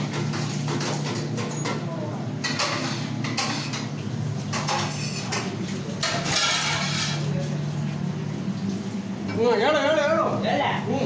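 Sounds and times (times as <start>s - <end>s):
metal pots and utensils clattering: 0.0s - 7.4s
low machine hum: 0.0s - 11.0s.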